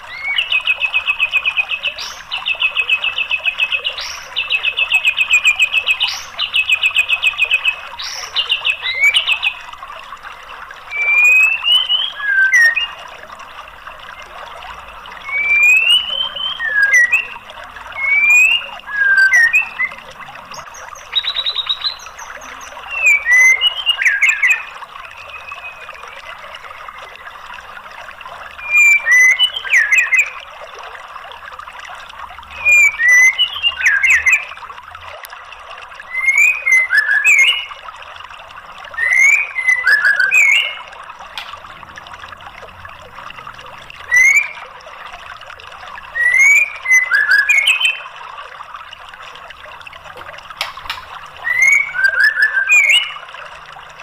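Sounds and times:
trickling water: 0.0 - 54.0
bird singing whistled notes: 10.9 - 13.0, 15.2 - 26.3, 28.6 - 30.4, 32.5 - 34.5, 36.1 - 37.8, 38.9 - 40.9, 44.0 - 44.6, 46.1 - 48.1, 51.4 - 53.3.

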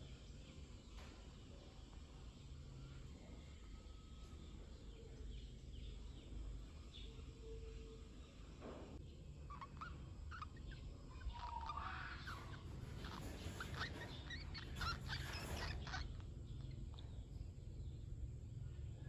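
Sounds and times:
low steady hum: 0.0 - 19.0
small animals chirping and squeaking: 9.3 - 18.0.

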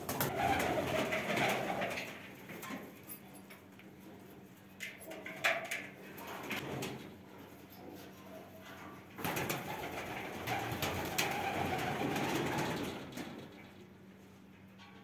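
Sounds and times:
pigeon cooing: 0.0 - 2.2.

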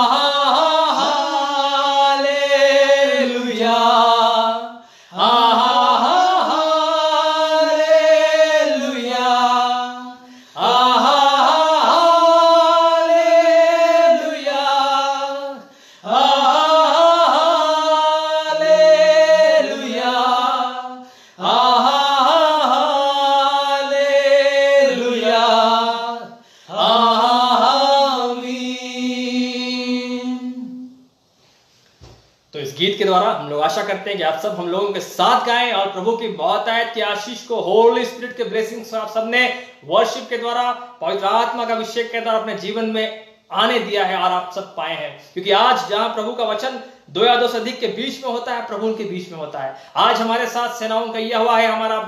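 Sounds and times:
men singing unaccompanied: 0.0 - 31.0.

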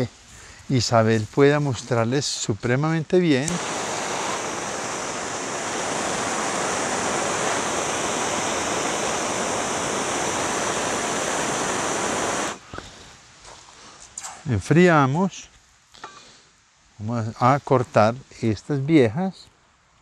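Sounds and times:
gas torch hissing: 3.4 - 12.8.

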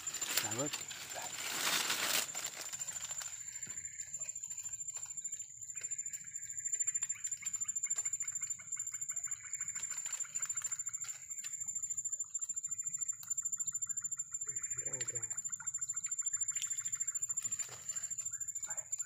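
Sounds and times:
high-pitched insect trill: 0.0 - 19.0
rapid pulsing animal calls: 12.4 - 19.0.

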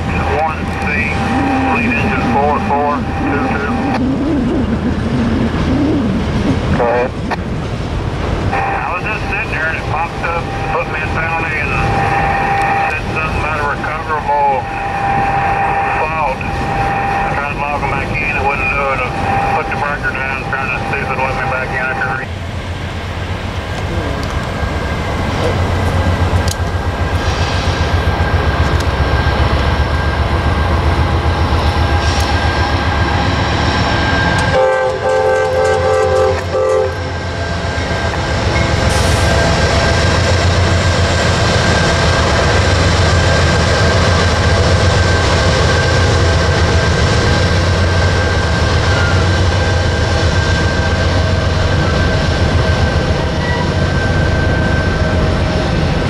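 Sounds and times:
diesel locomotives rumbling: 0.0 - 56.0
freight cars rolling over bridge: 0.0 - 56.0
train horn blast: 8.5 - 9.0, 11.8 - 13.1, 34.1 - 37.3.

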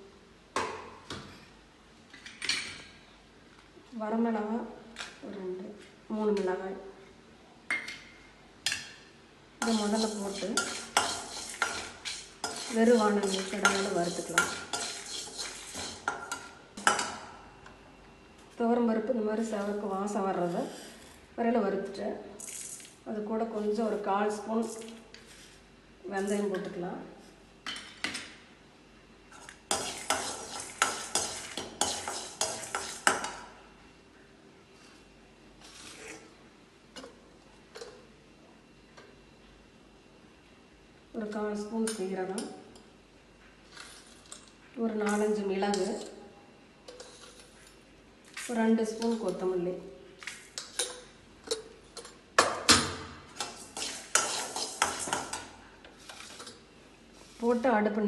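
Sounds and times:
steel spatula scraping a pan: 9.6 - 16.5, 29.7 - 33.4, 35.6 - 36.3, 53.4 - 55.4.

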